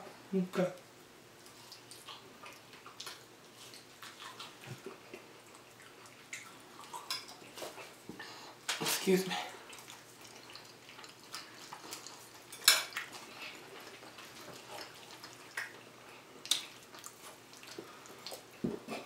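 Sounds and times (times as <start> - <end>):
forks clinking on plates: 12.5 - 13.0.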